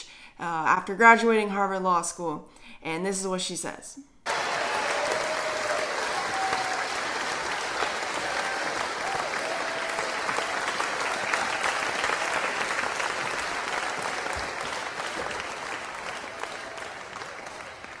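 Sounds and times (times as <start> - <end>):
audience applauding: 4.2 - 18.0.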